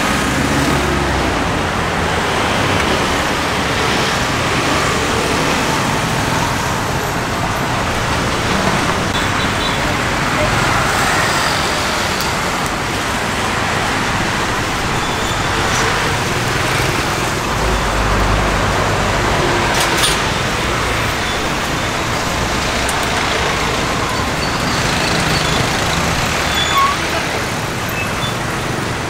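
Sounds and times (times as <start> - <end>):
bus engine rumble: 0.0 - 29.0
road traffic passing: 0.0 - 29.0.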